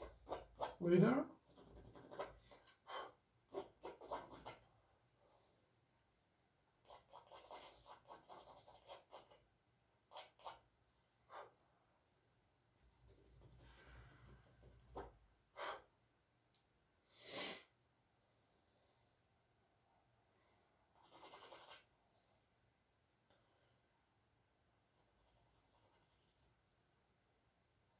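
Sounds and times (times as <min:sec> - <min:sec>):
charcoal scratching on canvas: 0:00.0 - 0:00.8, 0:01.4 - 0:04.6, 0:06.8 - 0:09.4, 0:10.1 - 0:10.6, 0:21.0 - 0:21.9, 0:25.1 - 0:26.5.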